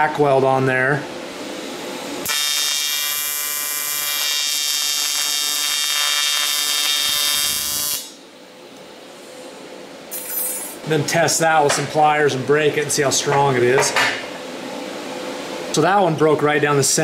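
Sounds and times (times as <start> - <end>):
welding arc buzzing: 1.7 - 8.2.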